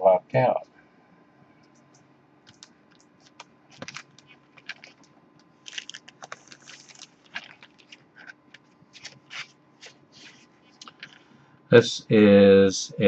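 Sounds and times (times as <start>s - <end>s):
taps clicks and rustles: 1.6s - 11.3s.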